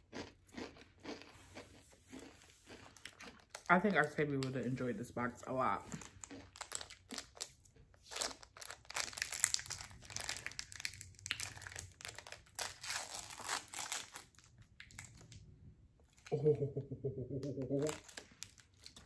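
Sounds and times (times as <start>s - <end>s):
candy wrapper crinkling: 5.9s - 15.4s, 17.8s - 19.0s.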